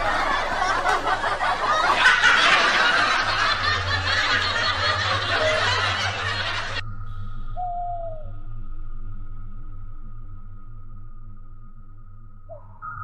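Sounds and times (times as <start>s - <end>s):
people laughing: 0.0s - 6.8s.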